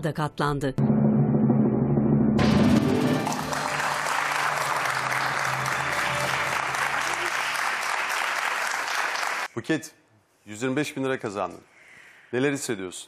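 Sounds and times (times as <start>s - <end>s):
studio audience applause: 2.4s - 9.5s.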